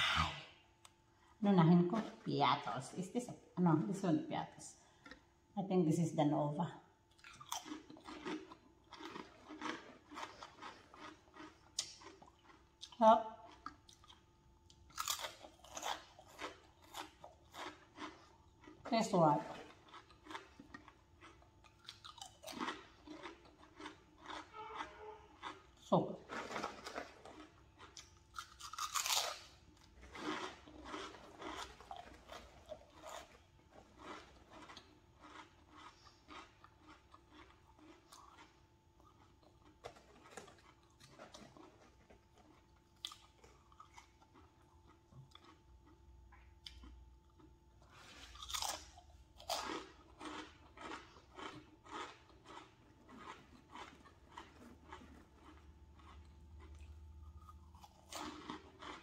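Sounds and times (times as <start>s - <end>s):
crunching chips: 7.1s - 46.0s, 46.6s - 59.0s.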